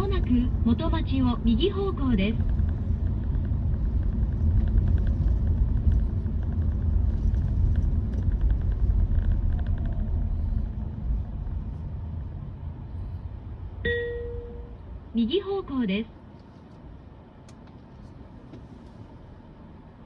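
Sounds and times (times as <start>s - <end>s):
road and tyre rumble: 0.0s - 20.0s
short car chime: 13.9s - 14.8s.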